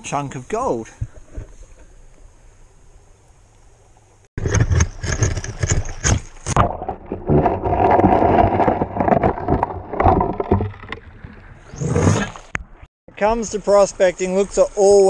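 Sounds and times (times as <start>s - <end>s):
stones knocking underwater: 4.4s - 12.8s
muffled churning water: 4.9s - 12.9s.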